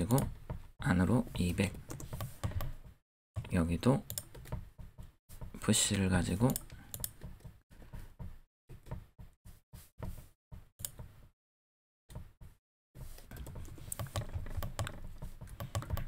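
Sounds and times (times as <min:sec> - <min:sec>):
computer keyboard keys clicking: 0:03.4 - 0:04.6, 0:06.4 - 0:07.4, 0:13.2 - 0:16.0.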